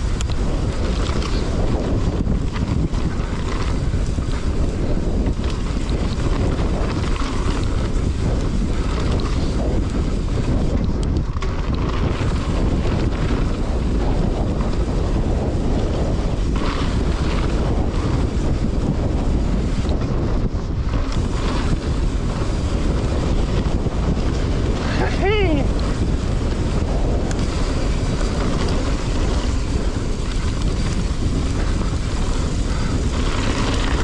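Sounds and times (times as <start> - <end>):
wind buffeting microphone: 0.0 - 34.0.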